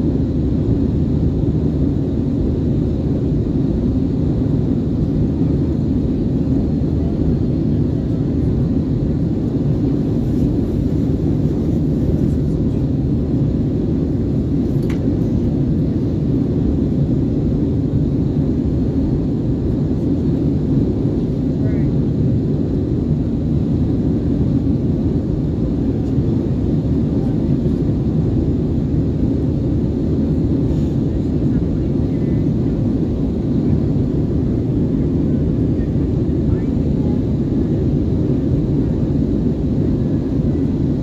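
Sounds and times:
jet engines rumbling: 0.0s - 41.0s
faint click: 14.8s - 15.0s.

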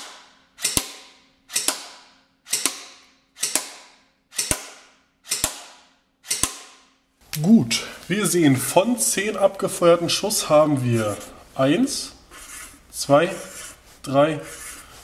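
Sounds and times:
airsoft pistol shots: 0.0s - 6.9s.

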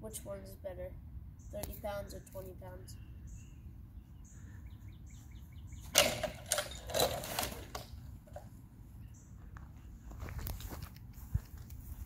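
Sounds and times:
trebuchet knocking and rattling: 5.8s - 8.4s.

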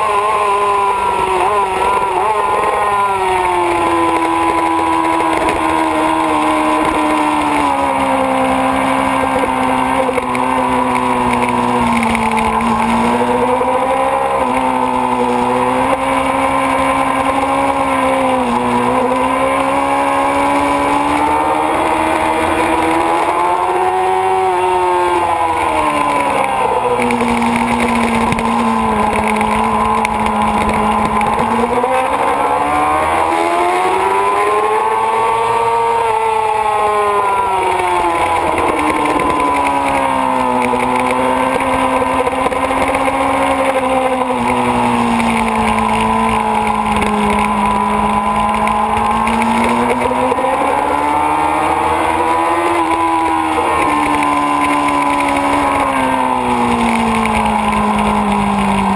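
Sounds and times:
motorcycle engine revving: 0.0s - 58.9s.

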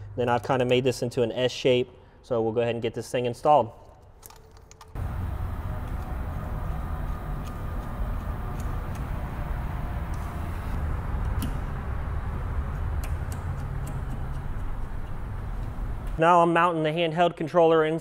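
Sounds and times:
low rumble: 5.0s - 13.4s
fuel line fittings clicking: 11.2s - 11.8s, 12.6s - 16.2s.

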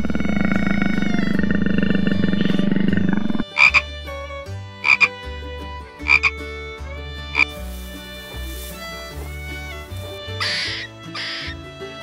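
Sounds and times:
frog-like double croaks: 0.0s - 3.8s, 4.8s - 5.1s, 6.1s - 6.3s
loud rasping buzz: 0.0s - 3.9s, 7.3s - 11.7s
soft music of held tones: 0.0s - 12.0s.

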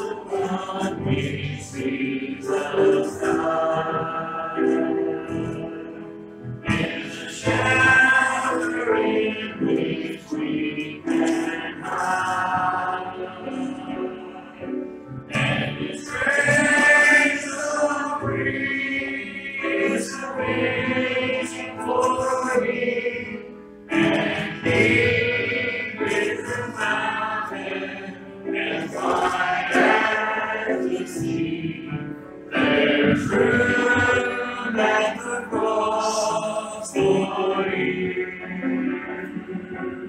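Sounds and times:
congregation singing a hymn: 0.0s - 40.0s.

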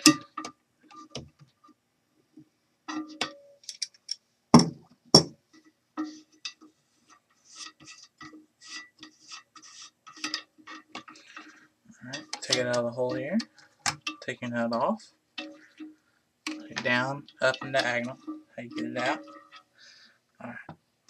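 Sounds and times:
metal wrench clinking on nut: 2.9s - 4.2s
sharp knocks: 4.6s - 5.4s.

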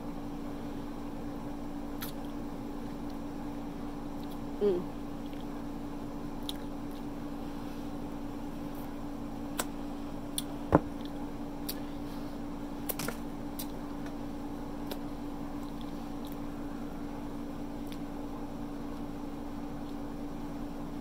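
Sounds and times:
steady low hum: 0.0s - 21.0s
wet mouth clicks while chewing: 2.0s - 2.2s, 6.4s - 7.1s.

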